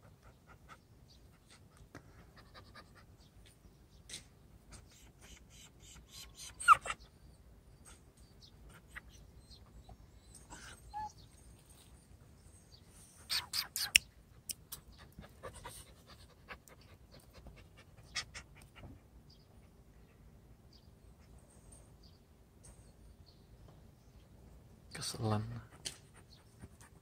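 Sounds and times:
puppy panting: 13.3 - 19.9, 25.6 - 27.0.

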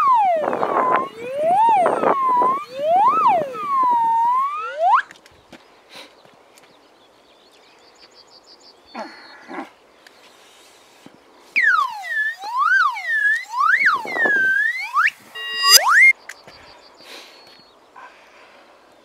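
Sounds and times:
faint high chirps: 0.0 - 5.1, 11.6 - 16.4
high siren-like wail: 0.0 - 5.1, 11.6 - 16.1
short pitched calls: 0.0 - 5.1, 11.6 - 16.2.

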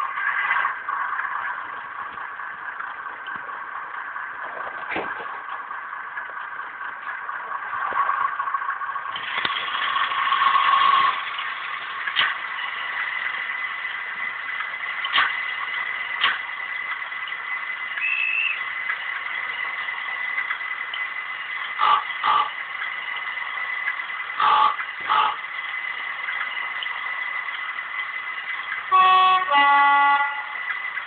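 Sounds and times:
diesel engine idle through small speaker: 8.4 - 31.0.

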